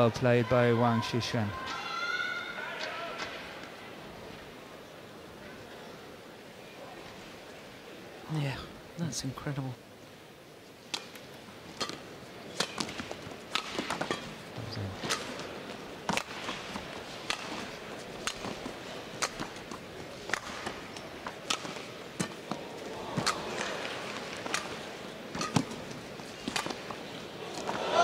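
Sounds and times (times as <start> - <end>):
rackets striking shuttlecock: 11.8 - 14.4, 15.0 - 15.5, 16.1 - 22.6, 23.2 - 27.0.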